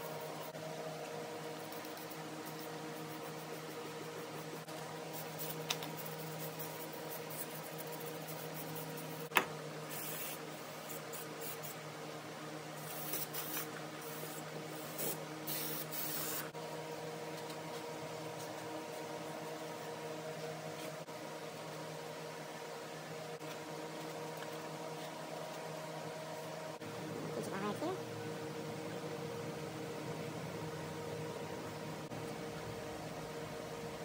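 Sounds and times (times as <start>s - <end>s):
steady hum: 0.0s - 34.0s.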